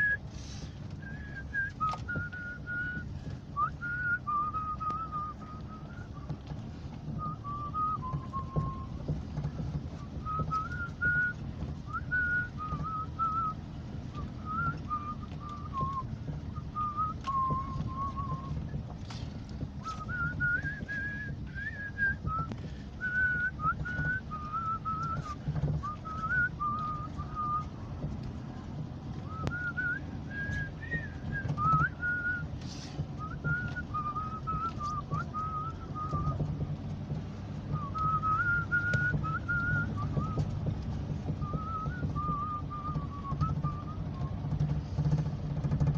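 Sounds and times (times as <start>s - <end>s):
person whistling a melody: 0.0s - 0.2s, 1.0s - 6.3s, 7.2s - 9.0s, 10.0s - 18.6s, 19.8s - 27.8s, 29.3s - 32.6s, 33.2s - 36.5s, 37.6s - 40.6s, 41.4s - 44.4s
knocks from road bumps: 0.0s - 45.9s
vehicle rumbling on dirt road: 0.0s - 45.9s.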